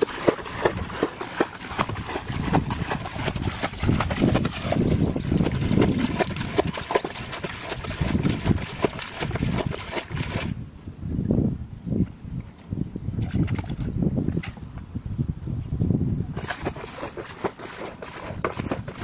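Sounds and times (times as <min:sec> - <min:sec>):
splashing in shallow water: 0:00.0 - 0:10.6, 0:13.2 - 0:14.6, 0:16.4 - 0:19.0.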